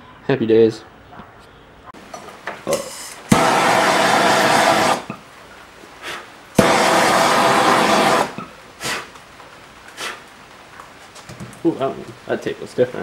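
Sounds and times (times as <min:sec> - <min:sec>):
gas torch flame hissing: 0:02.7 - 0:05.2, 0:06.0 - 0:09.2, 0:09.8 - 0:10.3.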